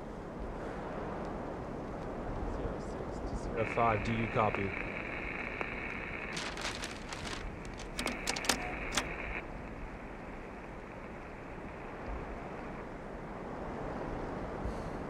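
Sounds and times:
radio static hiss: 3.5s - 12.9s
radio crackling clicks: 4.0s - 12.8s.

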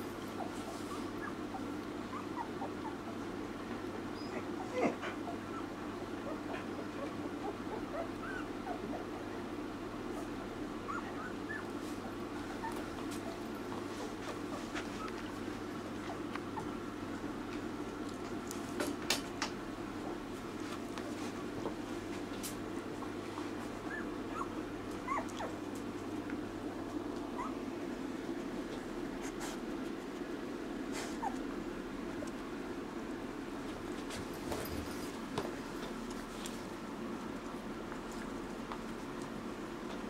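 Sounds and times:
low hum and hiss: 0.0s - 40.0s
puppies squeaking and whimpering: 0.4s - 3.3s, 4.1s - 5.7s, 6.3s - 9.0s, 10.8s - 11.8s, 23.8s - 25.6s, 27.3s - 27.6s.

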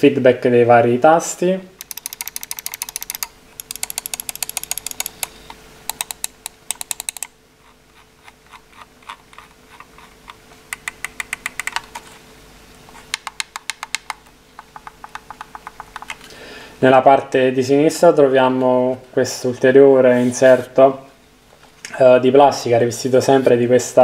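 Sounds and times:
computer mouse buttons clicking: 1.8s - 12.0s, 13.1s - 16.2s.

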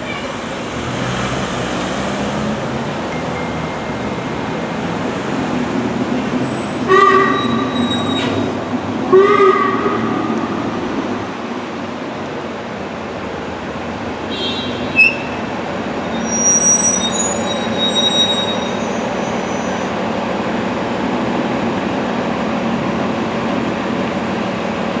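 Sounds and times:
traffic rumble: 0.0s - 25.0s
bus brakes squealing: 6.2s - 8.7s, 14.6s - 20.0s.

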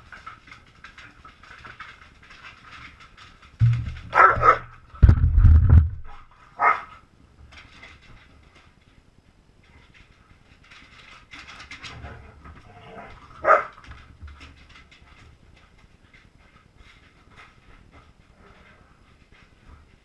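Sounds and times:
dog bumping into camera: 3.6s - 6.2s
dogs barking: 4.1s - 4.8s, 6.6s - 6.9s, 13.4s - 13.8s.

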